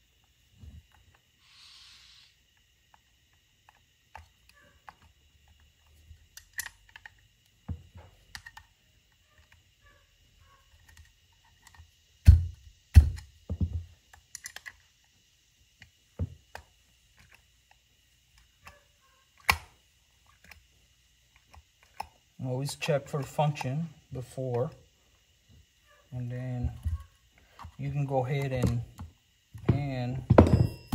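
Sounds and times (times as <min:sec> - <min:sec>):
heavy thumps: 0:29.6 - 0:30.9.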